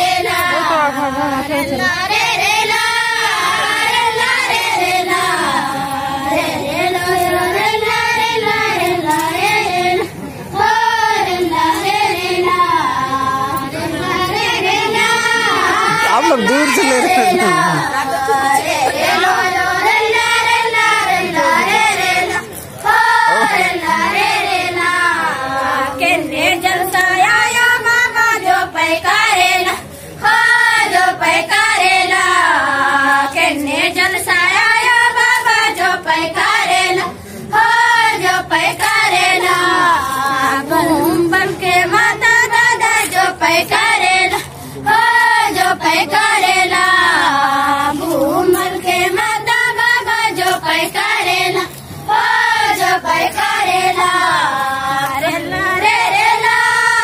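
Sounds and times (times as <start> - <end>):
girls singing in chorus: 0.0 - 57.0.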